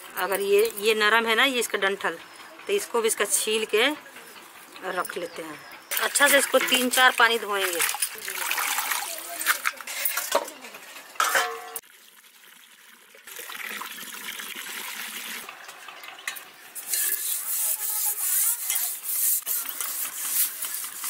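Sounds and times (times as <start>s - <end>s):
steel utensils clinking: 0.1s - 11.8s, 15.5s - 21.0s
metal pot rubbing and scraping: 0.2s - 8.3s, 9.4s - 11.8s, 15.4s - 21.0s.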